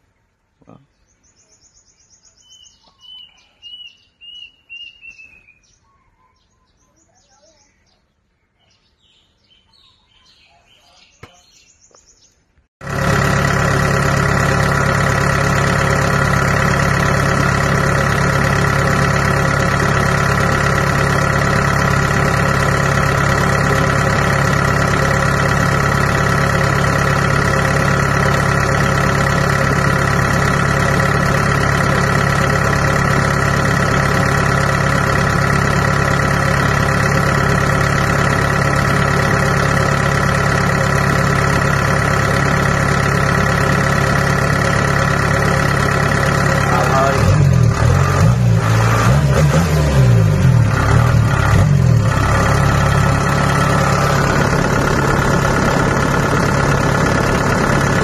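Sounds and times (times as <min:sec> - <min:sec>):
faint birdsong: 0:00.0 - 0:12.7
diesel engine running: 0:12.8 - 0:58.0.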